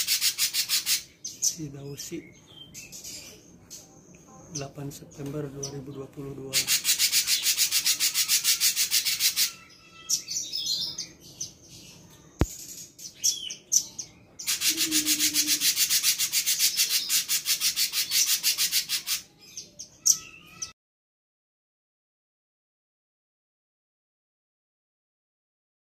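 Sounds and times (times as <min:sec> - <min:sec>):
bird rasping chatter: 0:00.0 - 0:01.6, 0:06.5 - 0:11.6, 0:12.8 - 0:20.7
short bird notes: 0:14.5 - 0:17.0.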